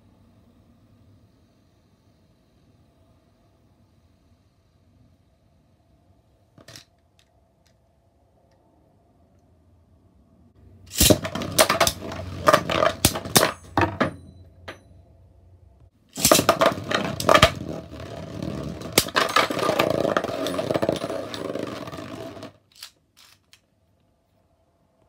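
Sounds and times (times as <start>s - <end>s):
spinning tops clattering in plastic arena: 10.9s - 14.1s, 16.2s - 23.6s.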